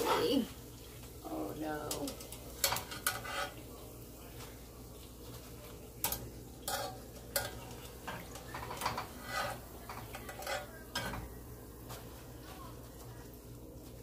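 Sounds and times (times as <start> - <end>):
faint oil sizzle: 0.0 - 14.0
skimmer clinking and scraping: 1.4 - 3.8, 5.5 - 11.4.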